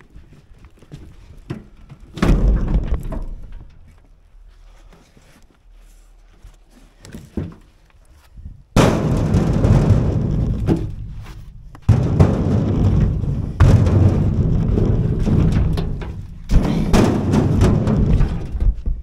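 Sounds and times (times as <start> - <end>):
light knocks and shuffling: 0.0 - 19.0
firewood thunking: 1.5 - 4.1, 8.8 - 19.0.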